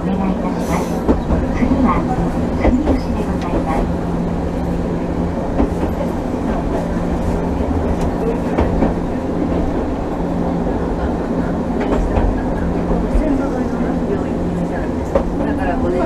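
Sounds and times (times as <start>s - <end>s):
tram rumbling along track: 0.0s - 16.0s.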